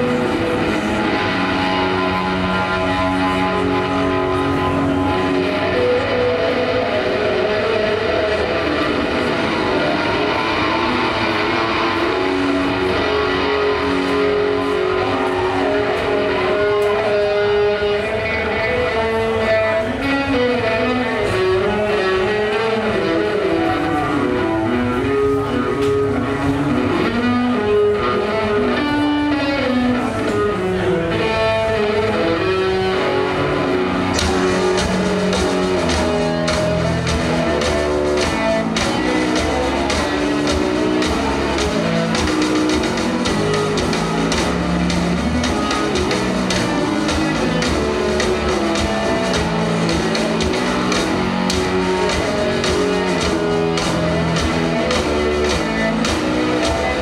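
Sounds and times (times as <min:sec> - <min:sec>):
electric guitar riffing: 0:00.0 - 0:57.0
drum kit pounding: 0:33.9 - 0:57.0.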